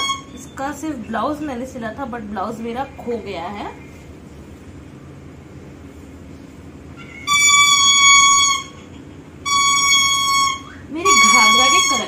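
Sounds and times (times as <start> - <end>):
shrill high tone blasts: 0.0 - 0.8, 7.0 - 12.0.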